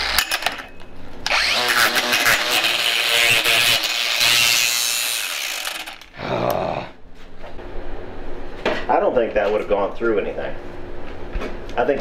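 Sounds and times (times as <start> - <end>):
angle grinder whining: 0.0 - 0.5, 1.2 - 6.2
disc grinding against steel: 1.3 - 6.2.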